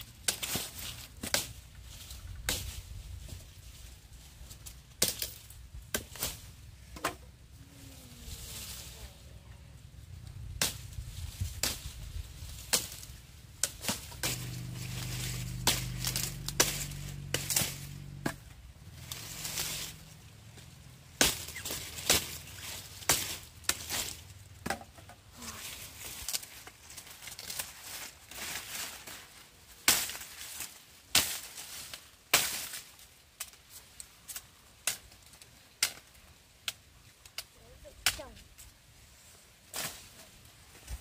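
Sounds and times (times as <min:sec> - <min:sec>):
blade chopping sugarcane: 0:00.2 - 0:01.6, 0:05.0 - 0:07.2, 0:10.6 - 0:10.9, 0:11.5 - 0:18.5, 0:21.2 - 0:25.0, 0:29.8 - 0:33.6
low steady hum: 0:05.4 - 0:26.2.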